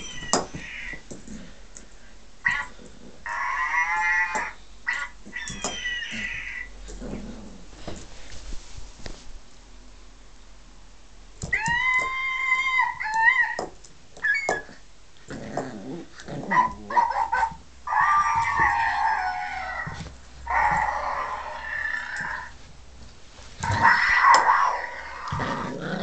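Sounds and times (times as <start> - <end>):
toy ball playing animal noises: 0.0 - 1.1, 2.4 - 6.8, 11.4 - 14.9, 16.5 - 22.6, 23.6 - 25.7
puppy growling: 2.5 - 7.8, 15.3 - 22.6, 23.6 - 26.0.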